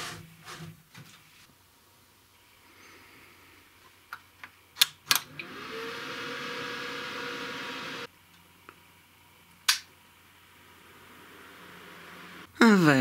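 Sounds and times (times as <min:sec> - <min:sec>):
computer fans whirring: 0:05.2 - 0:08.6, 0:09.2 - 0:12.5.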